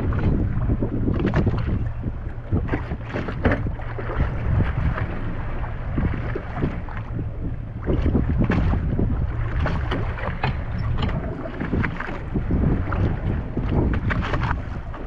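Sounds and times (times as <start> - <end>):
low rumble: 0.0 - 15.0
water splashing against boat: 0.0 - 15.0
wind buffeting microphone: 0.0 - 15.0.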